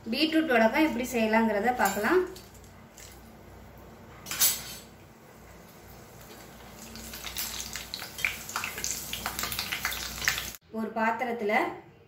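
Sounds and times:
food frying in hot oil: 5.0s - 10.6s.

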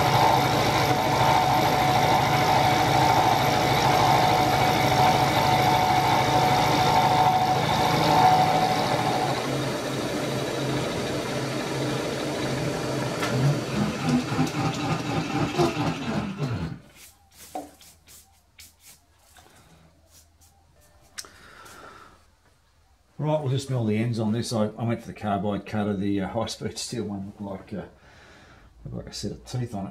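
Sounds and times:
milling machine running: 0.0s - 16.8s.

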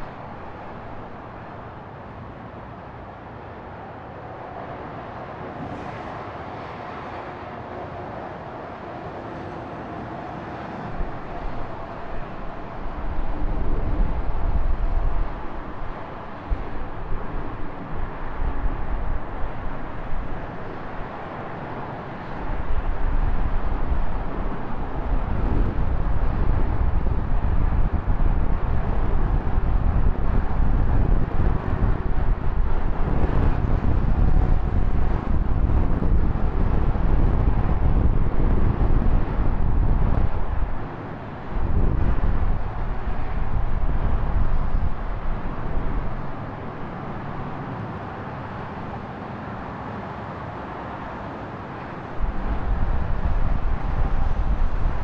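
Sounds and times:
wind buffeting microphone: 0.0s - 2.5s, 10.2s - 49.1s, 52.0s - 55.0s
steady traffic noise: 0.0s - 55.0s.

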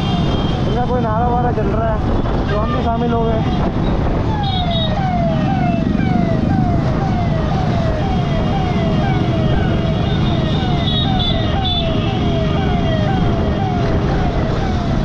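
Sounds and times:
scooter and motorcycle traffic: 0.0s - 15.0s
electronic police siren wailing: 3.4s - 15.0s.

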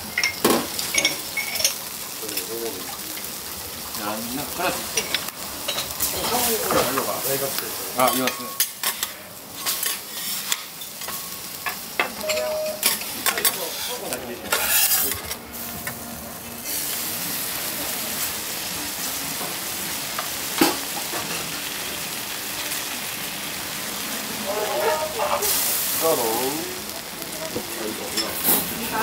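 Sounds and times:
food sizzling on a griddle: 0.0s - 29.0s
metal utensils scraping griddle: 8.0s - 11.2s, 12.2s - 15.4s, 24.4s - 26.3s.

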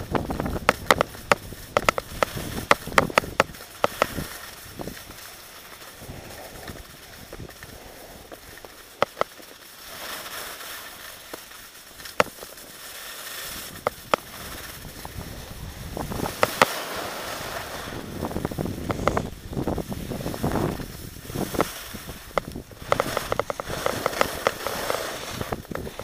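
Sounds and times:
wind noise on microphone: 0.0s - 5.2s, 5.9s - 8.6s, 13.5s - 26.0s
skis scraping over snow: 0.0s - 26.0s
sharp clicks and knocks: 0.6s - 4.2s, 22.3s - 26.0s.

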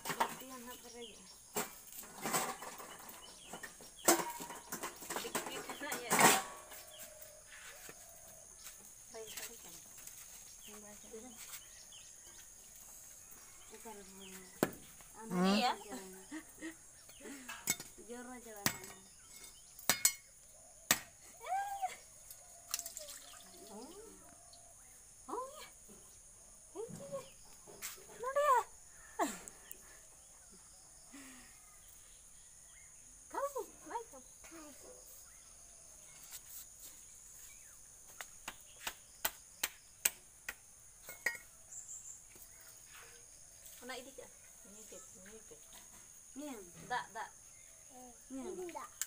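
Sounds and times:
crickets chirping: 0.0s - 49.0s
knife striking coconut husk: 20.9s - 21.2s.

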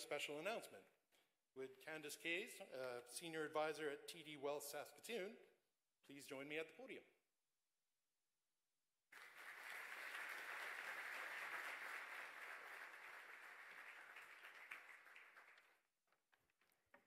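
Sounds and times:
audience applauding: 9.2s - 15.9s.

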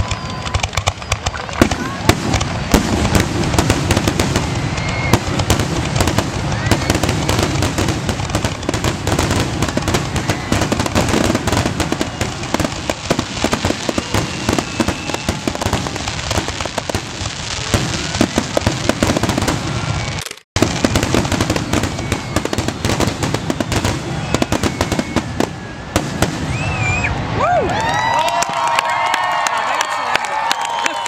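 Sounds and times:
fireworks bangs and crackling: 0.0s - 29.9s.

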